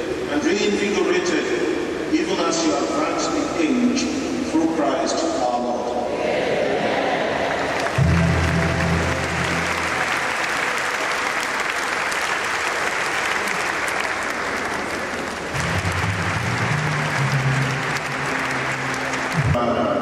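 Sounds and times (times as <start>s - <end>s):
crowd applauding: 7.4s - 19.6s.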